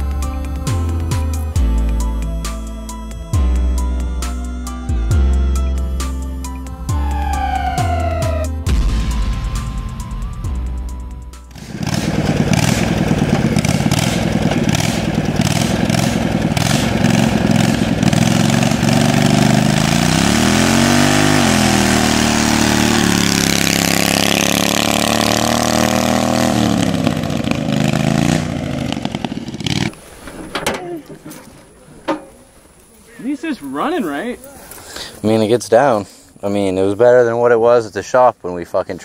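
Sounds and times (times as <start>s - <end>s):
lawnmower engine revving: 6.9s - 8.6s, 11.5s - 30.8s.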